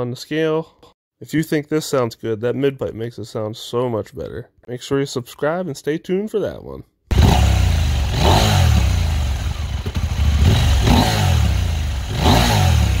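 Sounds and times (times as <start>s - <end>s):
motorcycle engine revving: 7.1s - 13.0s.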